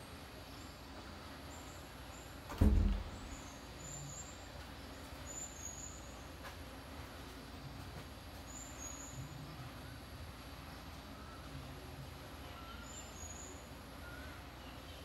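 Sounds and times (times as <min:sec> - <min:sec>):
faint outdoor background: 0:00.0 - 0:15.0
low thump: 0:02.5 - 0:03.4.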